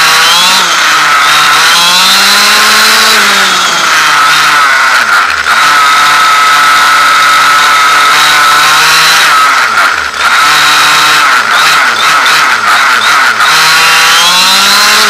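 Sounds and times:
high-revving model car engine: 0:00.0 - 0:15.0.

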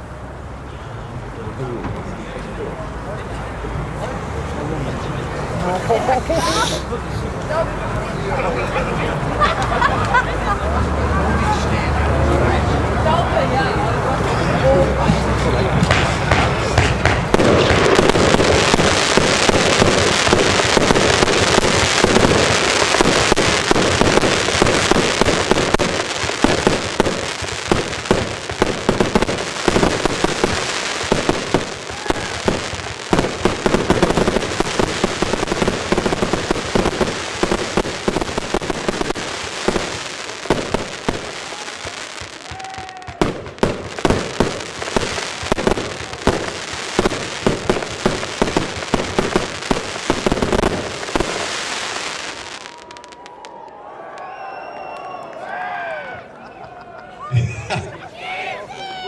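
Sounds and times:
fireworks launches bursts and crackle: 0:14.2 - 0:53.6
firework bangs: 0:14.9 - 0:54.3.

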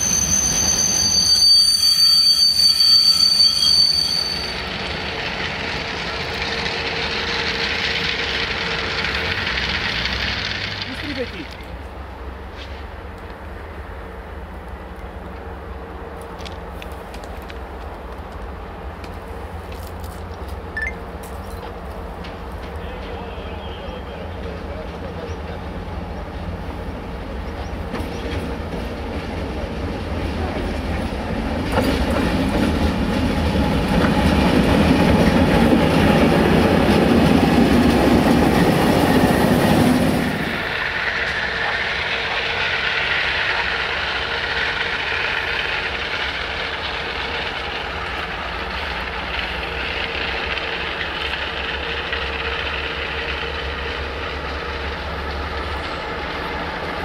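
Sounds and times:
diesel locomotive engines running: 0:00.0 - 0:57.0
locomotive passing on rails: 0:00.0 - 0:57.0
wheels clickety-clack: 0:04.8 - 0:13.4, 0:21.2 - 0:57.0.

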